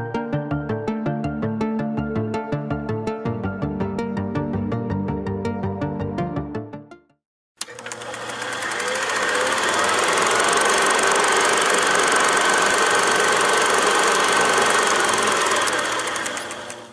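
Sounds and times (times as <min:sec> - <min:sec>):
film projector clatter: 0:07.6 - 0:16.9.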